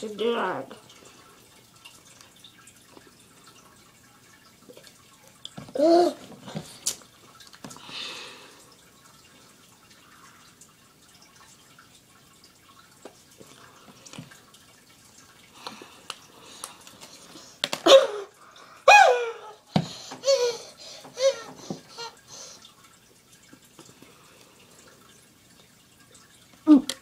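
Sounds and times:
boy vocal outburst: 18.9 - 19.6.

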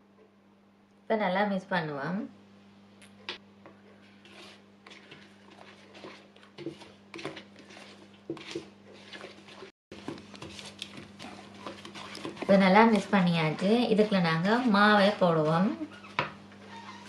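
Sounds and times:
spatula scraping dough in bowl: 3.9 - 17.0.

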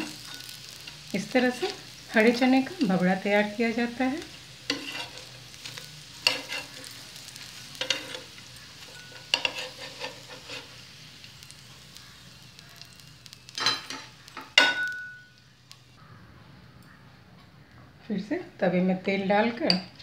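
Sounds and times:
metal spatula scraping griddle: 0.0 - 2.4, 4.2 - 14.9
oil sizzling: 0.0 - 16.0.

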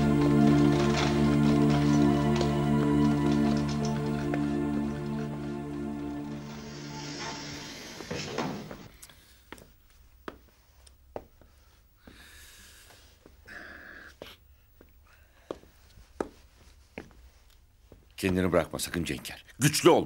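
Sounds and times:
background music: 0.0 - 8.9
footsteps on tiled floor: 0.0 - 13.5, 14.1 - 18.5
soft rustles: 15.5 - 18.2.

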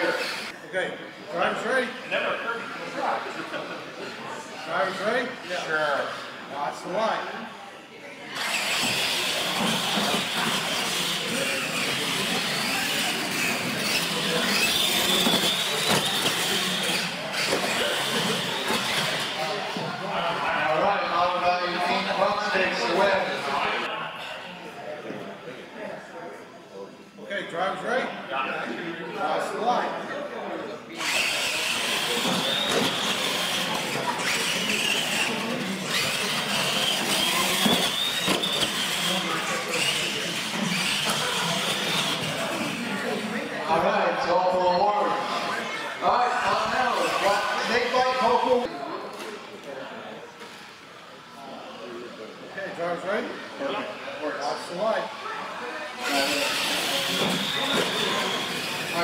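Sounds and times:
electric motors whining: 0.0 - 0.5, 8.3 - 19.8, 30.9 - 43.7, 55.0 - 59.0
tyres on concrete floor: 8.4 - 19.9.

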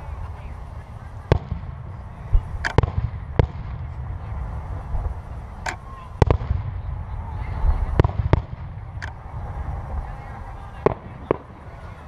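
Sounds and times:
firework shells bursting: 1.2 - 4.0.

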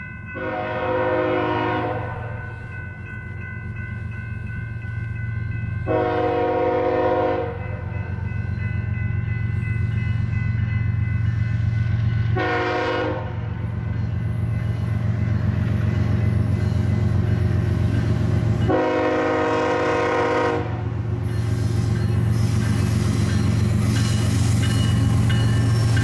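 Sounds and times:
train rumbling: 0.0 - 26.0
train horn blasts: 0.4 - 2.6, 5.9 - 7.9, 12.4 - 13.6, 18.6 - 21.0.

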